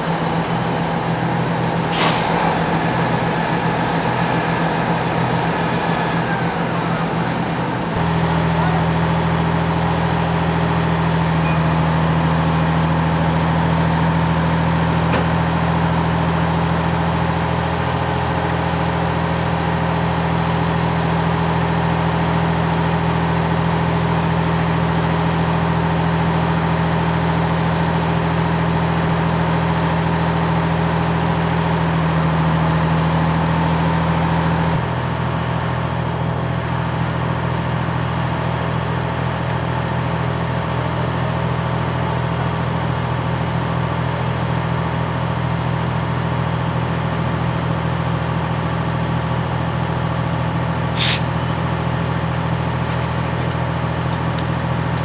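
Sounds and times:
heavy engine idling: 0.0 - 55.0.

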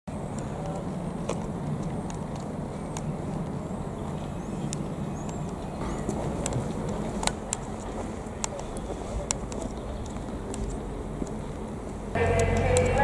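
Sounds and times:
diesel locomotives idling: 5.8 - 13.0.

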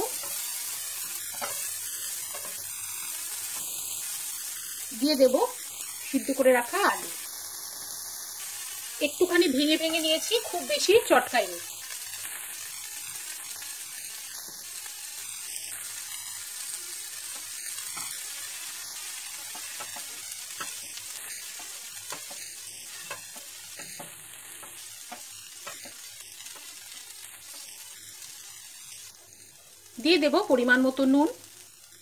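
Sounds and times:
food sizzling in oil: 0.0 - 32.0
spatula scraping and tapping pan: 1.2 - 2.7, 19.4 - 26.8.

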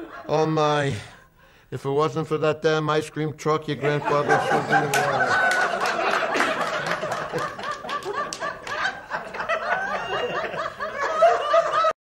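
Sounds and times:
crowd laughing: 0.0 - 0.5, 3.7 - 12.0.

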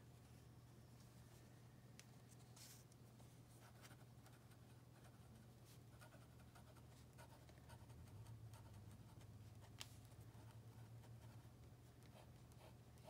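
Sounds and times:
low steady hum: 0.0 - 13.0
pen scratching on paper: 5.9 - 13.0.

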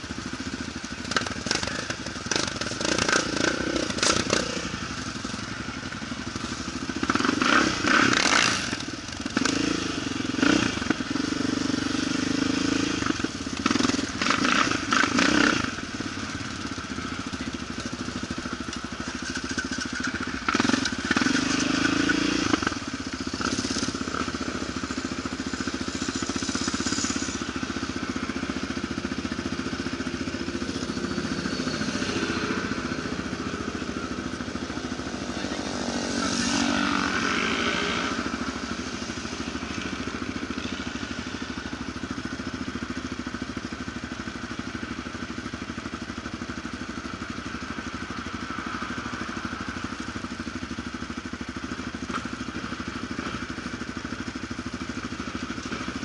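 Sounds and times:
quad engine revving: 1.1 - 5.0, 6.6 - 16.2, 19.4 - 41.2.

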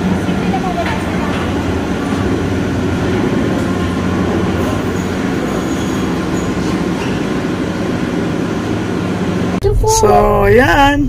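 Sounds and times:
gondola cabin mechanical rumble: 0.0 - 11.0
faint high squeal of cable: 4.8 - 7.2.

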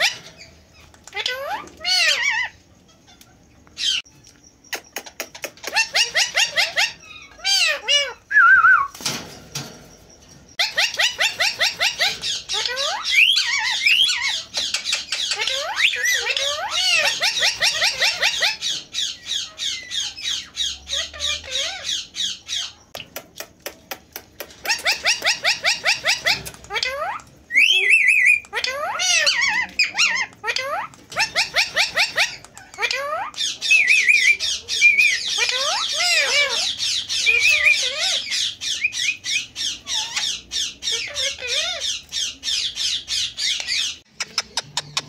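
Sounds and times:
parakeet squawking: 0.0 - 3.1, 5.5 - 8.3, 10.6 - 22.8, 24.7 - 44.6.

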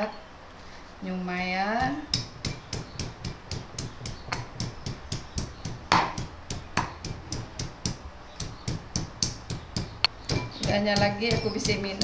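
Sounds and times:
loud knocks: 2.2 - 11.8.

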